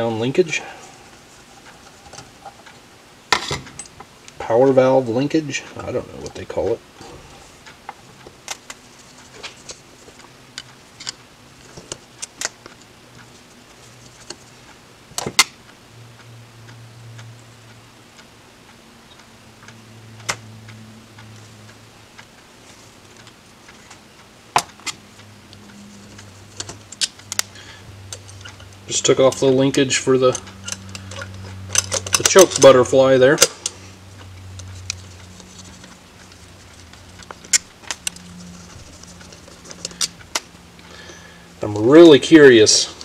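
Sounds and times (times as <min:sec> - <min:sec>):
faint low hum: 0:00.0 - 0:43.0
small metallic clicks and taps: 0:30.3 - 0:32.8.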